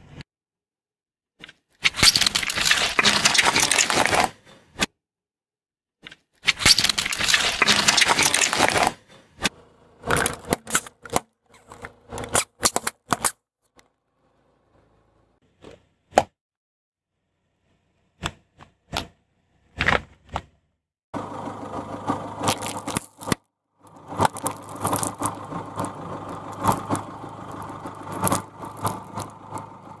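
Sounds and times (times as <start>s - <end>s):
plastic cups popping under tyre: 1.9s - 4.3s, 6.5s - 9.0s, 10.1s - 13.4s, 22.4s - 30.0s
dense crackling and crinkling: 1.9s - 4.4s, 6.4s - 9.1s, 22.4s - 30.0s
car engine humming: 21.2s - 30.0s.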